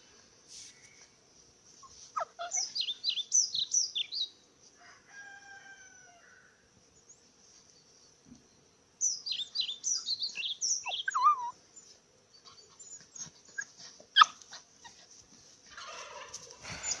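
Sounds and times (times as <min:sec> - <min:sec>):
puppy whining and squealing: 0:01.8 - 0:02.9, 0:10.8 - 0:11.6, 0:12.4 - 0:15.0
puppy yip: 0:02.2 - 0:02.7, 0:10.9 - 0:11.5, 0:13.6 - 0:14.5.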